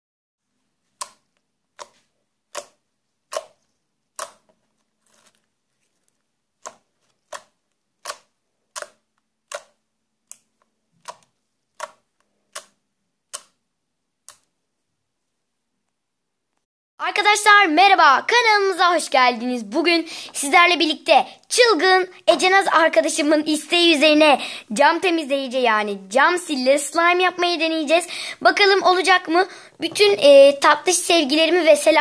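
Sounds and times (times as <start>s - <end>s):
slime clicking when pressed: 1.8s - 3.6s, 4.2s - 4.5s, 6.6s - 13.6s.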